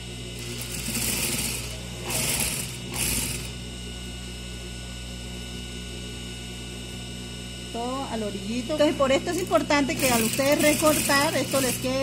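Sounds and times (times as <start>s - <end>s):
sewing machine motor humming: 0.0s - 3.6s, 9.1s - 12.0s
sewing machine stitching: 0.4s - 3.6s, 9.3s - 12.0s.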